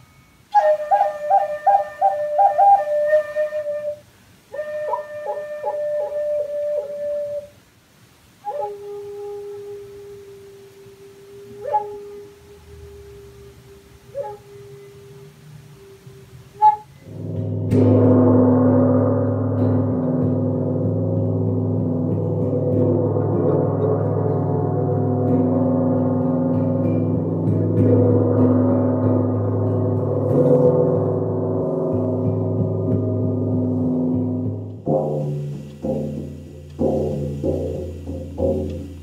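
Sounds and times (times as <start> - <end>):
short struck notes: 11.4 - 39.0
gong ringing: 17.0 - 39.0.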